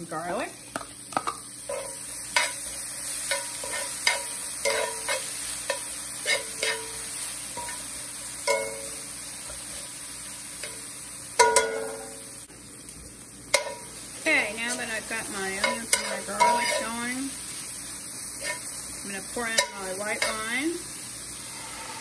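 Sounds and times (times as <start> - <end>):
onions sizzling in a skillet: 0.0 - 22.0
metal tongs clinking against pan: 1.7 - 7.0, 7.6 - 9.0, 10.6 - 12.2, 13.5 - 13.9, 14.6 - 17.2, 19.4 - 20.7.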